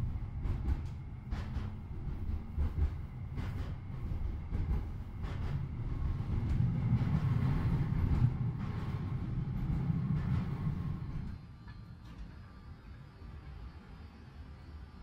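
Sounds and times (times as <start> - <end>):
tram wheels rumbling on rails: 0.0 - 15.0
knocks and rattles: 0.4 - 11.3.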